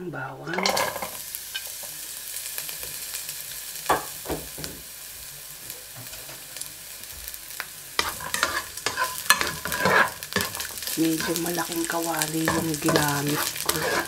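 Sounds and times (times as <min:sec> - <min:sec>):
spatula scraping pan: 0:00.4 - 0:01.7, 0:08.0 - 0:14.0
garlic sizzling in oil: 0:00.4 - 0:14.0.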